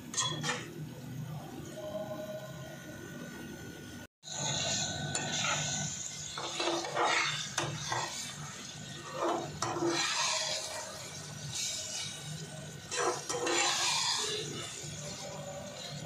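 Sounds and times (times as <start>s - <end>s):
metal spatula scraping a pan: 0.1s - 0.7s, 4.3s - 16.0s.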